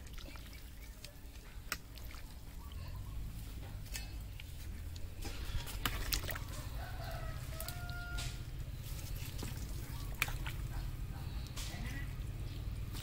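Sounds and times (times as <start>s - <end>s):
rooster crowing: 6.4s - 8.5s.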